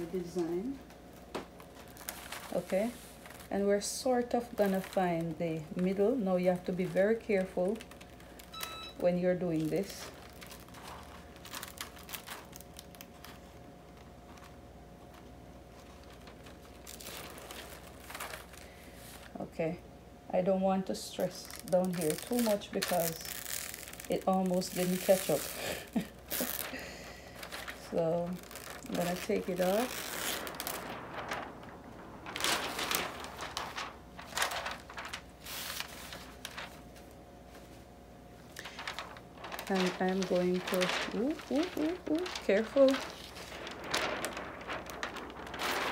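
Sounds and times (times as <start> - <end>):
small crackles: 0.0 - 19.4, 20.8 - 37.8, 38.4 - 45.9
plastic sheet crinkling and rustling: 0.0 - 19.8, 20.5 - 45.9.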